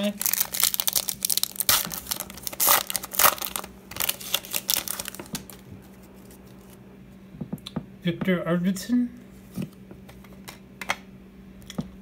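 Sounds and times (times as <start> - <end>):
foil wrapper tearing and crinkling: 0.0 - 5.7.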